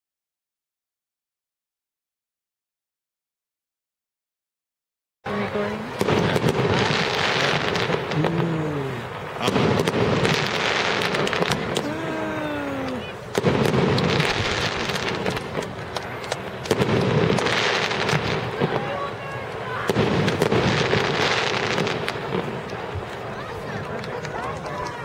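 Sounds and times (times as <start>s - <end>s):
fireworks crackling and popping: 5.3s - 25.0s
people calling out: 8.1s - 9.6s, 11.7s - 13.3s.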